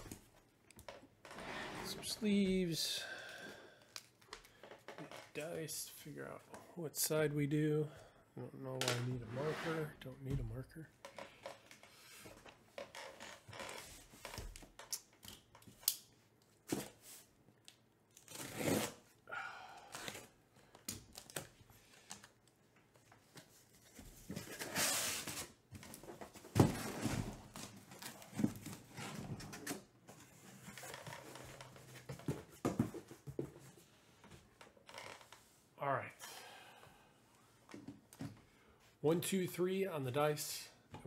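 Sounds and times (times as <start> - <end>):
packing tape tearing: 18.1 - 19.1.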